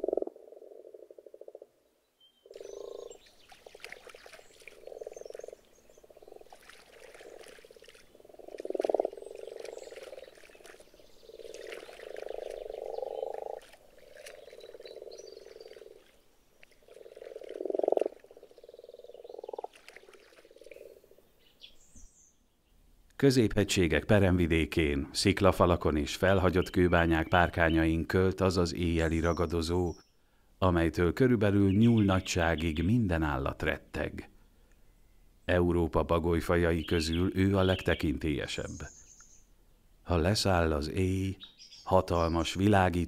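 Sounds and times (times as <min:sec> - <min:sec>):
frogs croaking: 0:00.0 - 0:01.8, 0:02.4 - 0:21.9.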